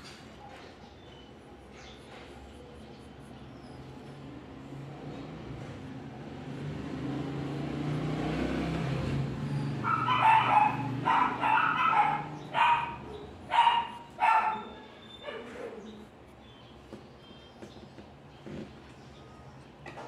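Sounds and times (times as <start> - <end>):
dog barking: 9.7 - 15.9.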